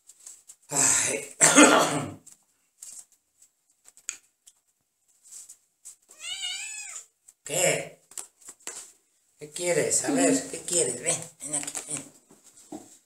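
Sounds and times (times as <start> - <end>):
person coughing: 1.0 - 2.2
kitten meowing: 6.1 - 7.1.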